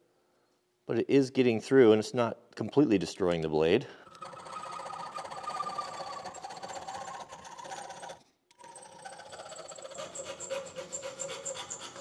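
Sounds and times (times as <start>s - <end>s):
file rasping on steel nail: 4.1s - 12.0s.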